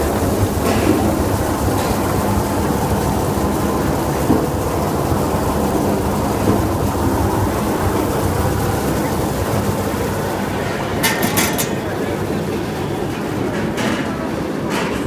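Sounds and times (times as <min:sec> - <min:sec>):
brush rollers churning: 0:00.0 - 0:15.0.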